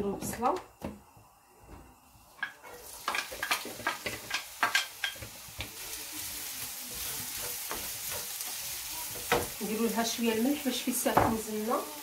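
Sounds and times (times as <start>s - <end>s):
onion sizzling in oil: 2.0s - 12.0s
wooden spatula tapping and scraping: 2.4s - 5.9s, 6.9s - 11.6s.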